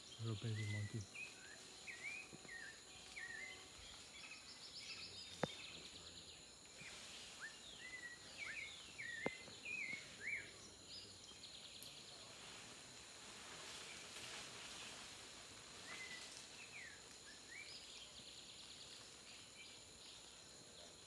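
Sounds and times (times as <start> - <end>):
birds chirping and trilling: 0.0 - 12.3
high insect drone: 0.0 - 21.0.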